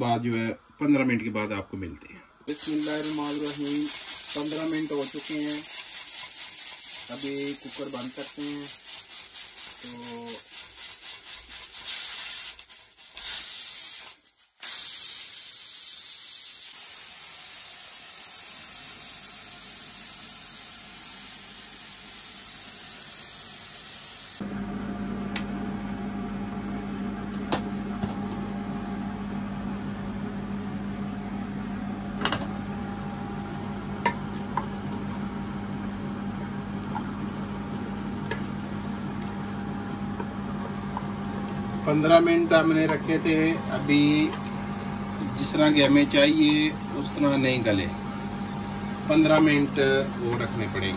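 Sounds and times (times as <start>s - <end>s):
steam hissing from pressure cooker: 2.5s - 24.4s
steady low hum: 24.4s - 50.9s.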